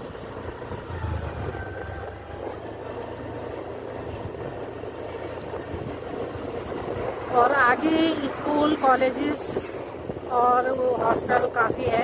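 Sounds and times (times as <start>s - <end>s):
scooter engine running: 0.0s - 8.4s
wind rush over microphone: 4.0s - 12.0s.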